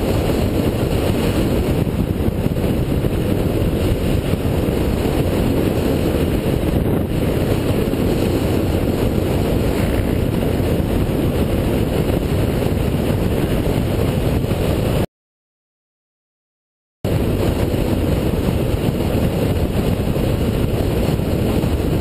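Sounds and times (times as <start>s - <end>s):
motorcycle engine: 0.0s - 15.0s
road noise: 0.0s - 15.1s, 17.1s - 22.0s
wind rush: 0.0s - 15.1s, 17.0s - 22.0s.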